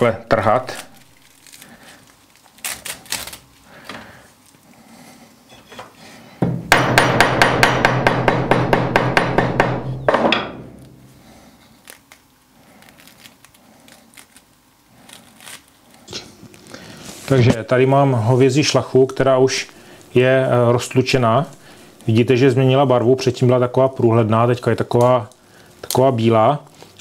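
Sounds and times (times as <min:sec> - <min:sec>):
sinew fibres tearing: 0:00.6 - 0:03.6, 0:11.6 - 0:17.4
hammer pounding on metal anvil: 0:06.4 - 0:10.8.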